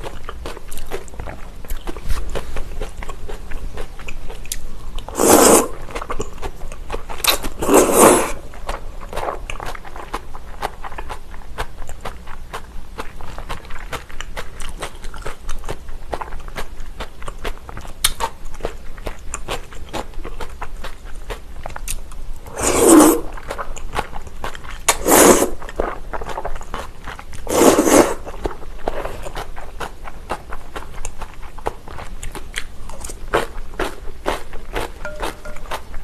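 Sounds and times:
loud slurps of noodles: 5.1s - 5.8s, 7.6s - 8.4s, 22.5s - 23.3s, 24.9s - 25.7s, 27.4s - 28.3s.

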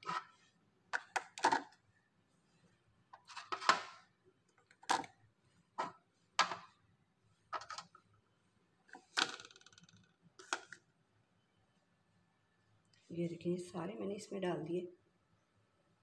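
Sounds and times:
plastic clacks and knocks: 8.9s - 10.8s.

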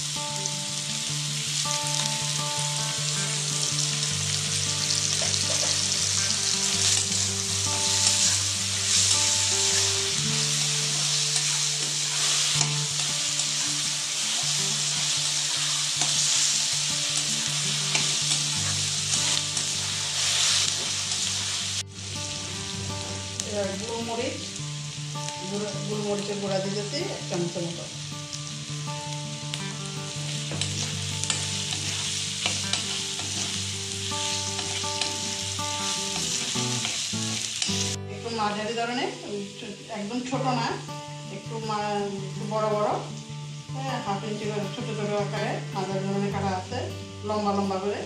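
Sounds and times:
vegetables sizzling in hot oil: 0.0s - 48.0s.

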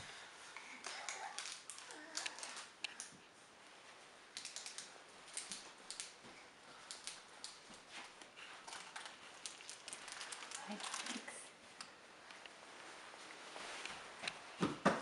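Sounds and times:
candy wrappers crinkling: 0.7s - 3.1s, 8.6s - 11.5s.

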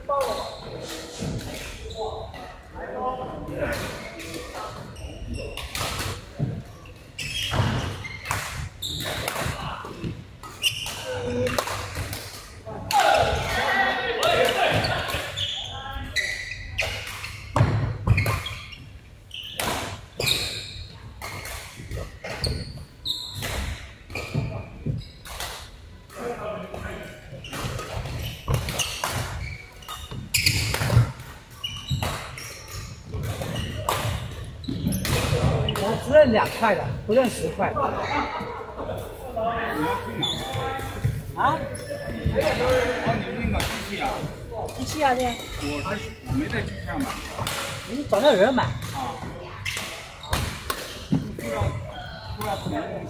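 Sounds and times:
shoes squeaking on court floor: 0.1s - 2.4s, 3.7s - 12.1s, 14.2s - 25.6s, 27.3s - 37.5s, 39.7s - 53.0s.

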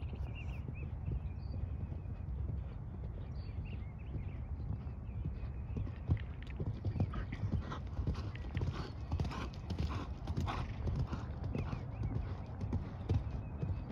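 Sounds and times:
horse hoofbeats on sand: 0.1s - 13.9s.

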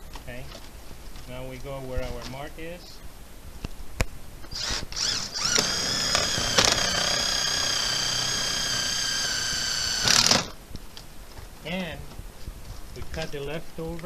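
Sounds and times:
cordless drill whirring: 4.4s - 10.6s.

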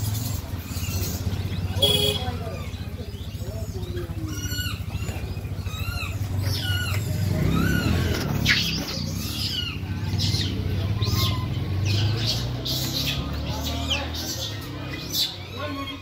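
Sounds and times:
monkeys squealing: 3.6s - 16.0s.

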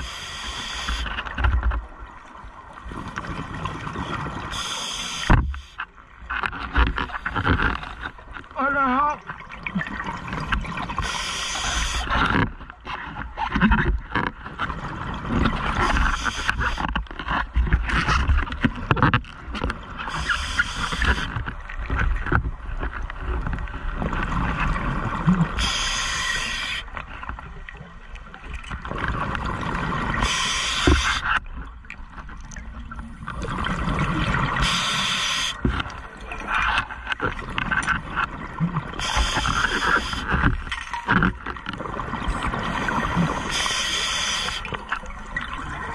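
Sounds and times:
hissing regulator inhalation: 4.5s - 5.7s, 11.0s - 12.1s, 20.1s - 21.3s, 25.6s - 26.8s, 30.2s - 31.3s, 34.6s - 35.6s, 39.0s - 40.3s, 43.4s - 44.7s.

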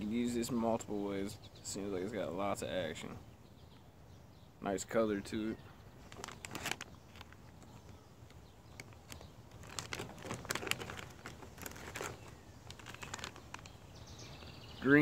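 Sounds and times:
plastic package crinkling: 6.0s - 13.9s.

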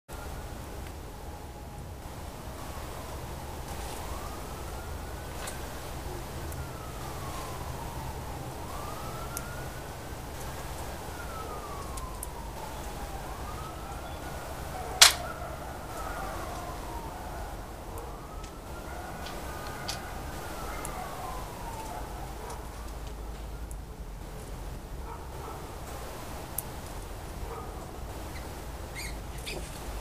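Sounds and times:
faint wailing siren: 0.1s - 30.0s
sharp gunshot: 15.0s - 15.2s.

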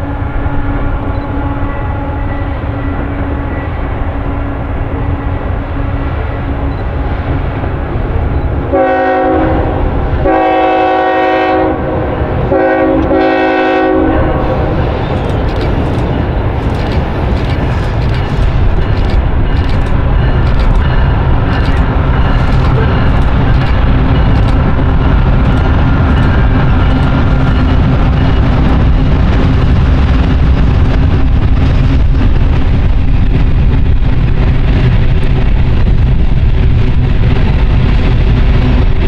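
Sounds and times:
train air horn blasts: 0.0s - 6.7s, 8.7s - 14.8s
diesel locomotive engine rumble: 0.0s - 39.0s
train wheels clicking on rails: 14.7s - 39.0s.

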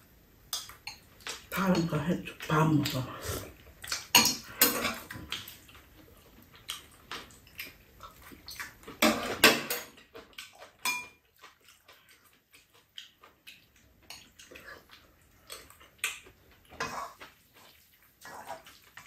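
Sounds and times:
cutlery clinking against bowls: 0.5s - 2.1s, 3.8s - 5.6s, 8.5s - 11.3s, 14.0s - 14.5s.

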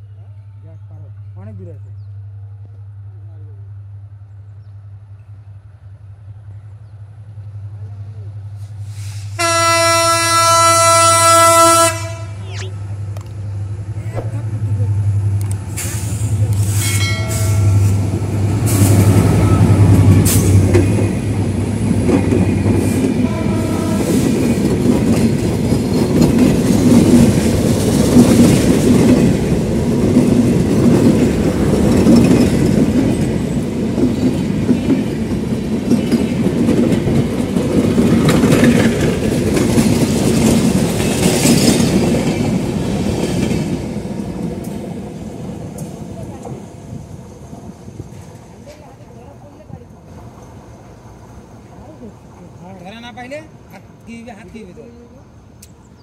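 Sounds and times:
locomotive engine drone: 10.8s - 35.8s
train wheels clickety-clack: 15.4s - 50.7s.

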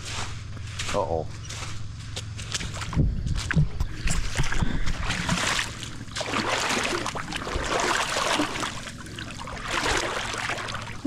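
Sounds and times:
boots wading through water: 2.4s - 11.0s.

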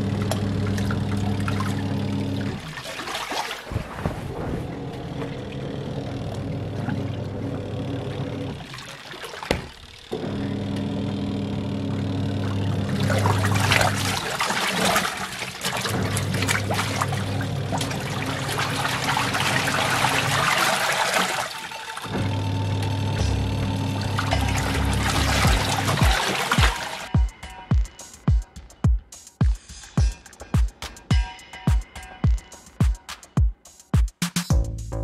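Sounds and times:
washing machine motor humming: 0.0s - 29.1s
water sloshing: 0.2s - 10.1s, 12.4s - 22.5s, 23.9s - 27.1s.

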